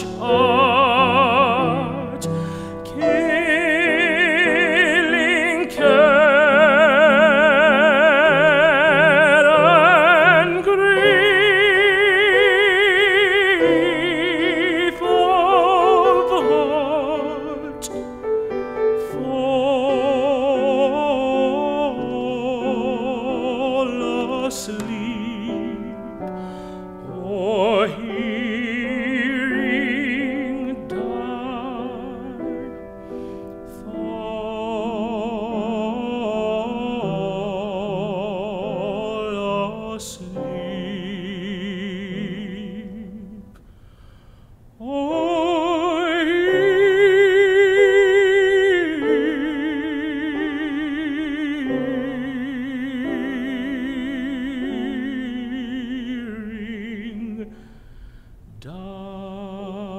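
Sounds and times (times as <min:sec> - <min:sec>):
tenor singing with vibrato: 0:00.0 - 0:43.9, 0:44.7 - 0:59.9
grand piano accompaniment: 0:00.0 - 0:59.9.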